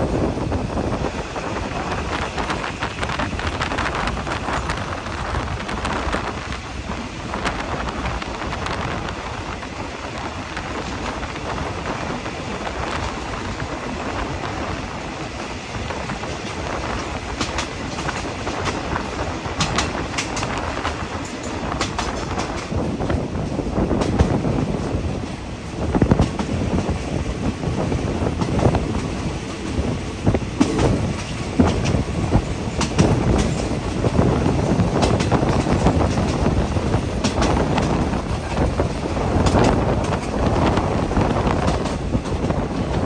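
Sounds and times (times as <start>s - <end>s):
train rumbling: 0.0s - 43.0s
wheels clicking over rail joints: 15.9s - 25.4s, 28.3s - 43.0s.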